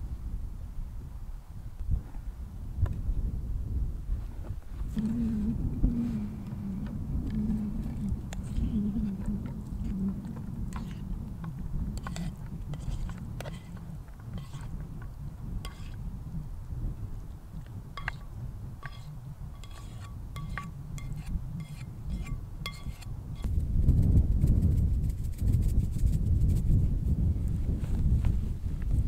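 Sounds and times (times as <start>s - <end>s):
wind rumble on the microphone: 0.0s - 29.0s
plastic utensil scraping a pan: 7.3s - 15.0s, 15.6s - 16.0s, 18.0s - 23.5s
metallic ring from the pan: 18.0s - 18.2s, 18.8s - 23.0s.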